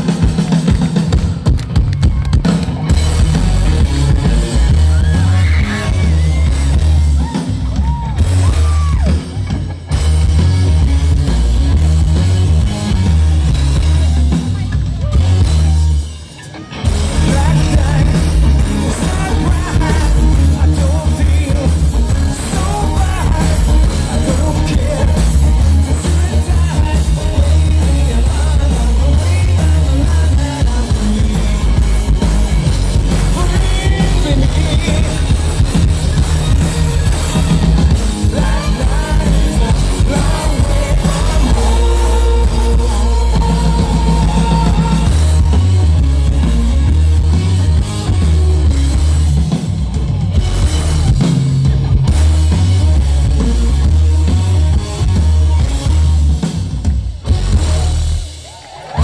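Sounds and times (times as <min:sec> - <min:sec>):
drums: 0:00.0 - 0:59.0
electric guitar: 0:00.0 - 0:59.0
live rock band playing: 0:00.0 - 0:59.0
person singing: 0:14.6 - 0:35.7, 0:37.6 - 0:46.4.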